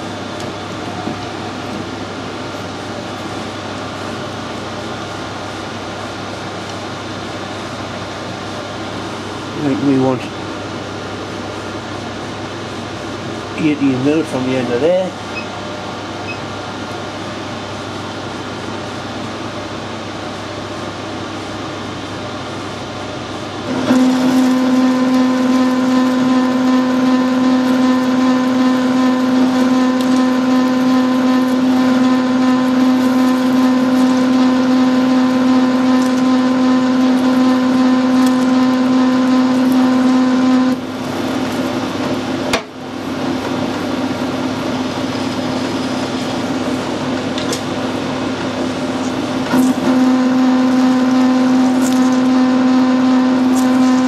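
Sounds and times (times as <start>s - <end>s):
steady pitched cutting hum: 18.9s - 54.0s
metal lathe running: 21.8s - 54.0s.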